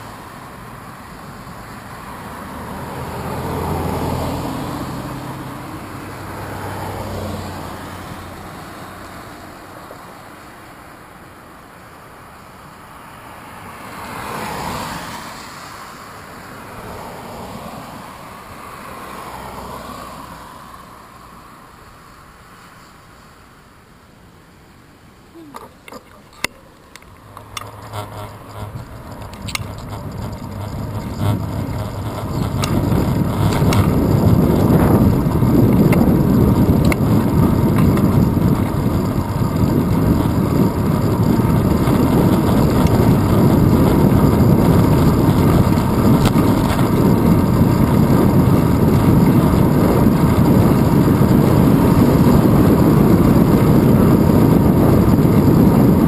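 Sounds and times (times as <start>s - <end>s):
wind and road noise rushing: 0.0s - 56.0s
clicks: 25.5s - 39.2s.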